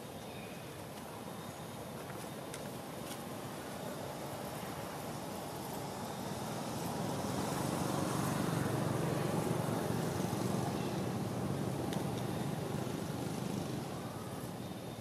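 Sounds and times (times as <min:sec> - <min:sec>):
vehicle passing by: 0:05.8 - 0:14.6.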